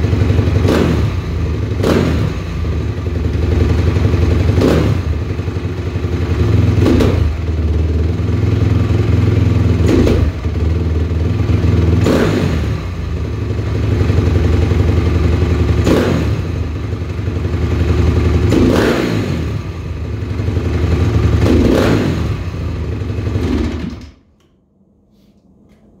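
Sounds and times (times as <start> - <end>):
motorcycle engine revving from idle: 0.0 - 24.1.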